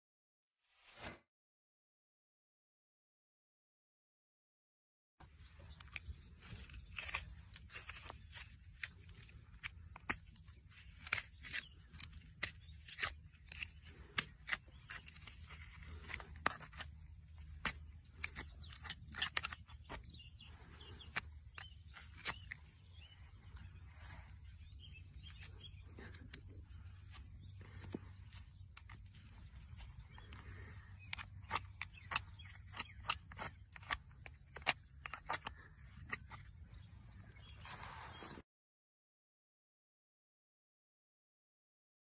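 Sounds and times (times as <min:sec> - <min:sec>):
hoof pick scraping dirt: 0:05.3 - 0:38.4.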